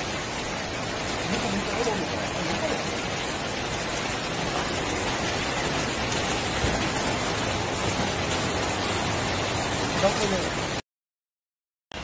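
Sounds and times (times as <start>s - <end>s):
heavy rain: 0.0s - 10.8s
rushing floodwater: 0.0s - 10.8s.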